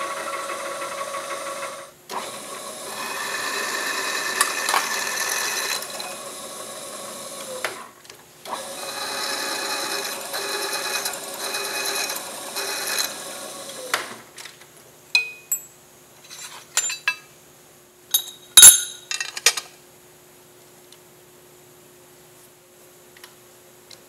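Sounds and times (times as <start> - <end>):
power tool running: 0.0 - 7.8, 8.5 - 14.0
metal parts clinking in vise: 16.3 - 17.3, 18.1 - 19.7.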